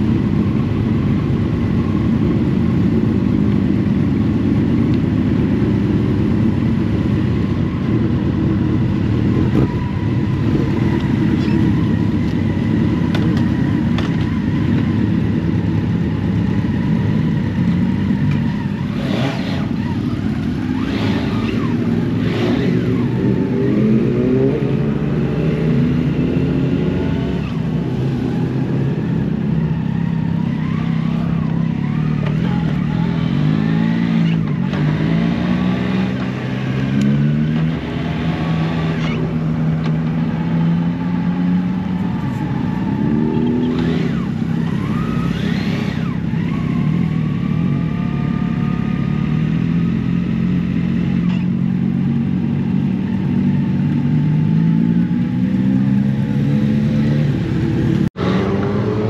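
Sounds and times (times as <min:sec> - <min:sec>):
vehicle engine revving: 0:17.1 - 0:59.0.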